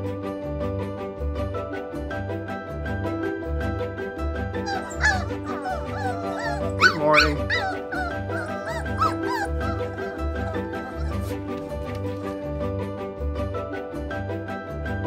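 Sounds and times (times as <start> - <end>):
background music: 0.0 - 15.0
puppies whimpering and yipping: 4.6 - 12.3.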